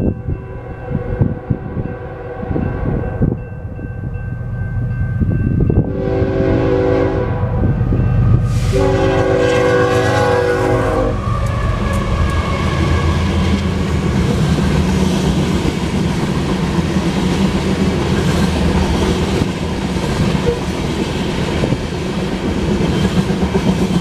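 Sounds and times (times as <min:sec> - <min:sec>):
freight train rumbling past: 0:00.0 - 0:24.0
locomotive horn: 0:00.5 - 0:03.3, 0:05.8 - 0:13.6.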